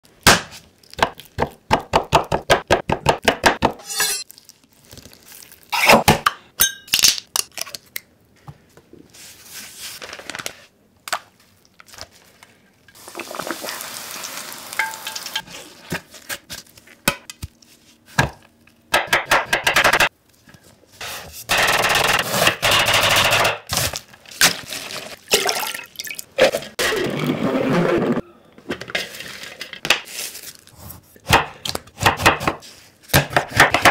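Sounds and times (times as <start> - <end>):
cutlets sizzling in oil: 13.0 - 15.4.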